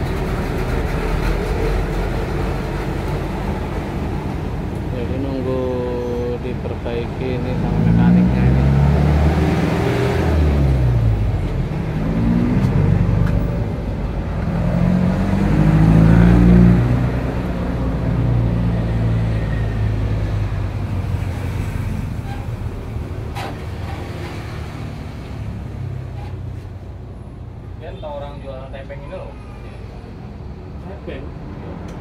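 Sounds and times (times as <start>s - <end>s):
engine revving: 5.0s - 26.1s.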